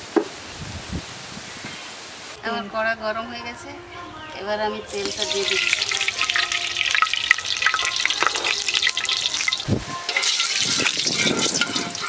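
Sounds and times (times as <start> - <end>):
oil crackling and sizzling: 4.9 - 12.0.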